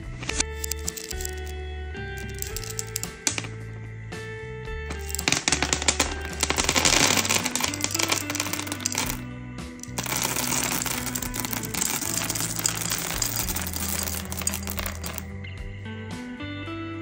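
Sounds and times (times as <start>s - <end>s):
candies clattering onto a tabletop: 0.3s - 1.5s, 2.2s - 3.6s, 4.9s - 9.2s, 9.8s - 15.3s.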